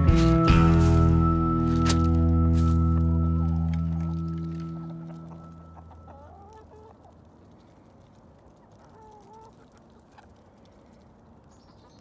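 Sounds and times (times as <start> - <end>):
hens clucking: 4.7 - 7.5, 8.2 - 10.5.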